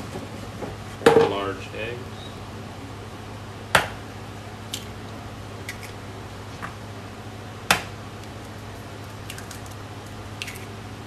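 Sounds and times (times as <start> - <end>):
eggshell clicking apart: 9.2 - 10.7.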